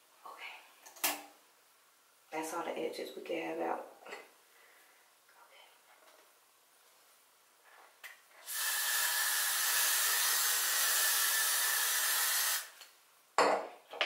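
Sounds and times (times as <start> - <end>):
aerosol can spraying: 8.4 - 12.8.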